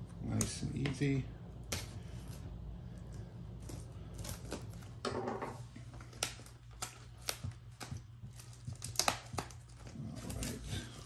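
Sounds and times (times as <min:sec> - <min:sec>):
plastic wrap crinkling: 0:05.6 - 0:11.0.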